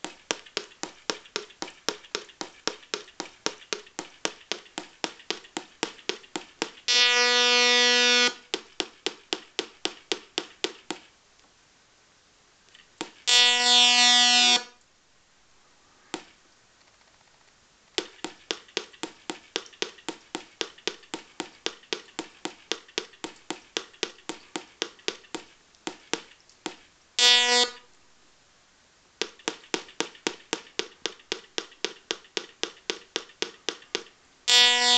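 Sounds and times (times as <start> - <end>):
longer buzzy tones: 6.9 - 8.4, 13.2 - 14.8, 27.2 - 27.9, 34.5 - 34.9.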